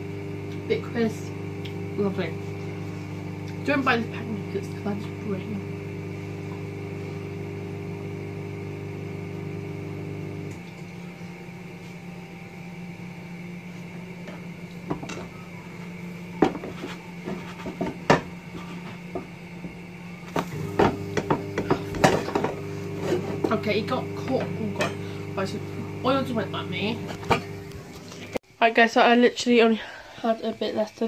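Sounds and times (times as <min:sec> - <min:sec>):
kitchen appliance humming: 0:00.0 - 0:28.6
kitchenware knocking: 0:16.4 - 0:18.3, 0:20.7 - 0:22.6
kitchenware clattering: 0:20.7 - 0:23.6.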